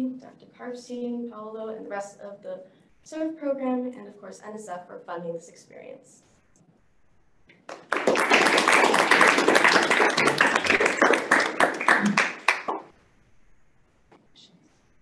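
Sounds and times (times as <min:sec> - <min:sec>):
audience applauding: 0:07.7 - 0:12.9.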